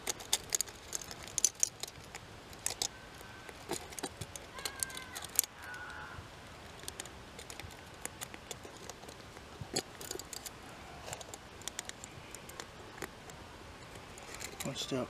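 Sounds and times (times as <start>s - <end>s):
metal wire clicking: 0.0s - 2.9s, 3.5s - 6.0s.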